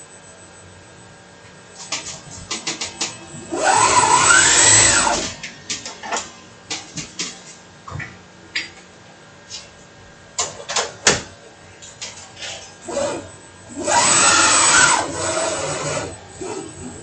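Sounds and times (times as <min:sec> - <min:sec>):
motor whine: 0:00.0 - 0:06.5, 0:12.8 - 0:17.0.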